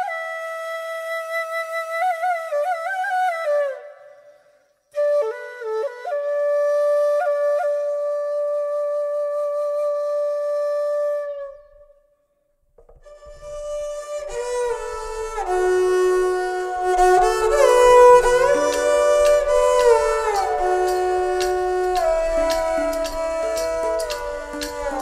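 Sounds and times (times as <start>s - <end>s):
instrumental background music: 12.9s - 25.0s.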